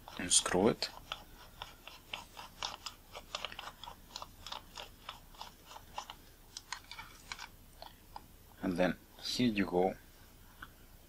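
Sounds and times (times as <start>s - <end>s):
small clicks and scrapes of metal: 0.0s - 8.3s.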